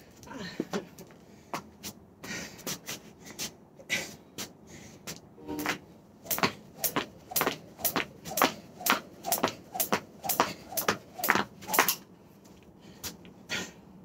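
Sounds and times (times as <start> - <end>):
jump rope slapping wooden deck: 5.6 - 12.0.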